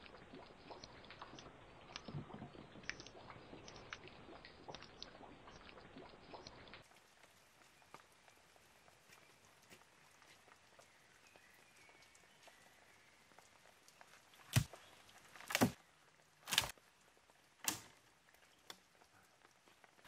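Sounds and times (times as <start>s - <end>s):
quiet forest background: 0.0s - 20.0s
log knocking onto logs: 15.4s - 15.8s.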